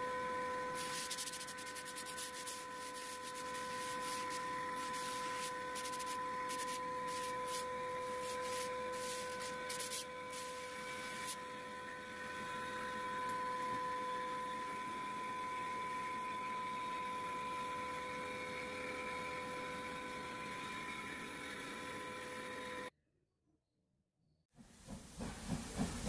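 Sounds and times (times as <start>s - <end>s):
steady high whine: 0.0s - 22.9s
sandpaper rubbing on wood: 0.8s - 11.4s.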